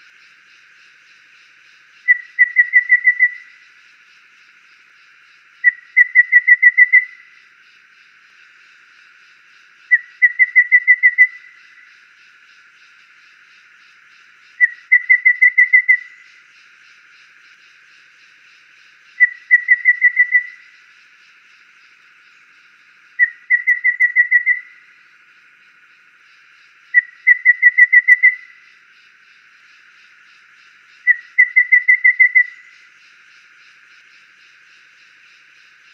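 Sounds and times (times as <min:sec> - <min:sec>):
bird whistling song: 0:02.0 - 0:03.6, 0:05.6 - 0:07.3, 0:09.9 - 0:11.8, 0:14.6 - 0:16.4, 0:19.2 - 0:20.8, 0:23.2 - 0:24.8, 0:26.9 - 0:28.7, 0:31.0 - 0:32.9.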